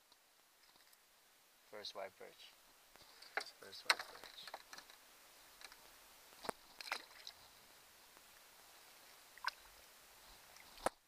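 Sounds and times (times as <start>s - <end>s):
faint steady hiss: 0.0s - 11.0s
fish splashing into water: 6.8s - 7.4s.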